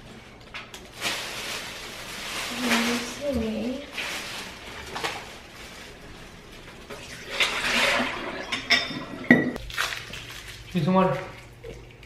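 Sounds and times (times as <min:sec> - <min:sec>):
water splashing into sink: 0:07.0 - 0:12.0
glass clinking: 0:08.4 - 0:09.6.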